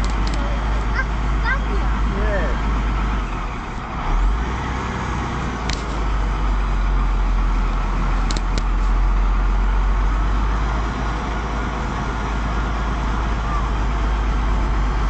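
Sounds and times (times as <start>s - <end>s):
sharp clicks: 0.0s - 0.4s, 8.2s - 8.8s
diesel truck engine running: 0.0s - 15.0s.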